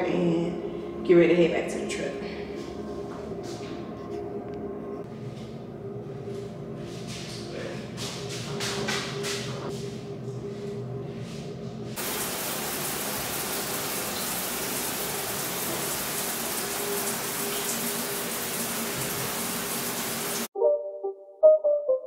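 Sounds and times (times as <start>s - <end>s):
water spraying from shower head: 12.0s - 20.5s.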